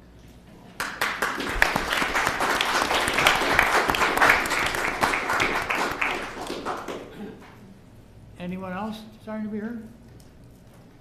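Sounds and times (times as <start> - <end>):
audience applauding: 0.8 - 7.3.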